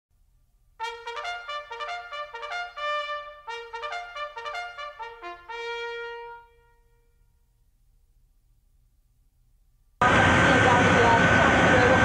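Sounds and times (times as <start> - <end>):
trumpet fanfare: 0.8 - 7.2.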